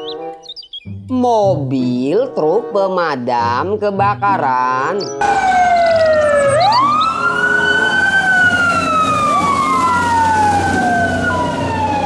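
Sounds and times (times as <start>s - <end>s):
fire engine siren wailing: 5.2s - 12.0s
low engine hum: 5.2s - 12.0s
second siren tone: 5.2s - 12.0s.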